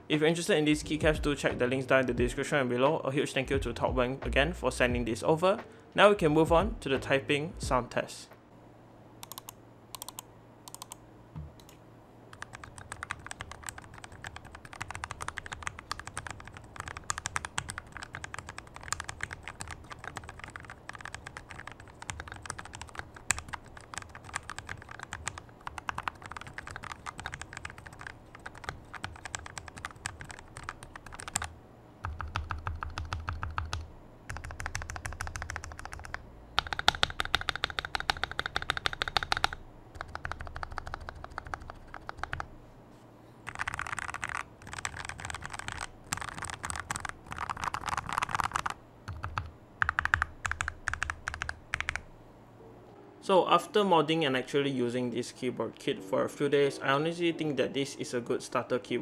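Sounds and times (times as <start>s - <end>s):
mechanical keyboard typing: 9.2s - 11.0s, 12.3s - 42.5s, 43.5s - 52.0s.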